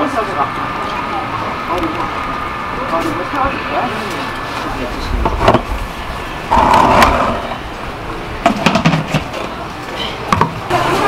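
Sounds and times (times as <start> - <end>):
plastic bucket knocks and clacks: 8.4 - 9.4.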